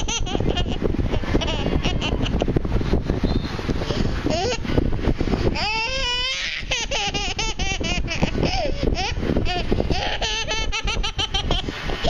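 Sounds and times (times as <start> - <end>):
baby laughing and squealing: 0.0 - 2.6, 4.2 - 4.8, 5.5 - 12.0.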